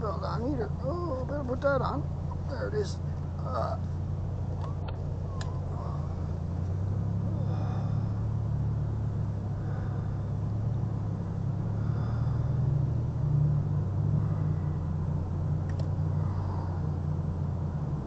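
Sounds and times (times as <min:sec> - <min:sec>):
car engine and road rumble: 0:00.0 - 0:18.0
light click: 0:15.7 - 0:15.9.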